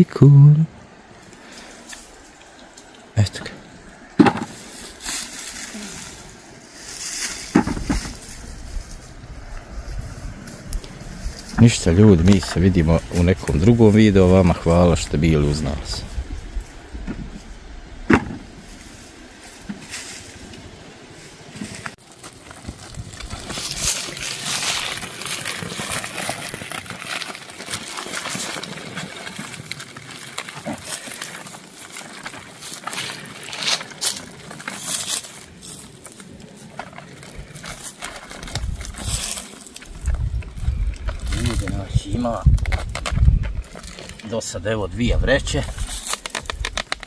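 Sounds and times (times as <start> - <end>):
plastic sacks rustling: 21.8 - 44.2.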